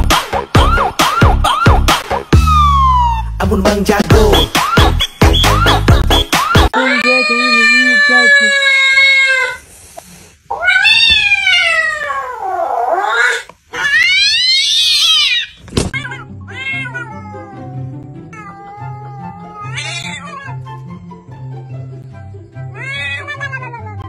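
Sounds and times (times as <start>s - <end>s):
background music with steady beat: 0.0s - 6.8s
cat yowling: 6.7s - 9.6s, 10.5s - 20.7s, 22.8s - 24.0s
cat meowing: 6.8s - 9.6s, 10.5s - 20.7s, 22.8s - 24.0s.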